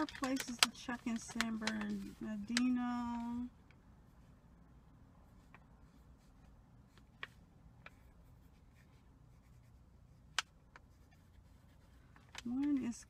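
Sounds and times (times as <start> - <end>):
light taps and clicks: 0.0 - 3.8
low steady hum: 0.0 - 13.0.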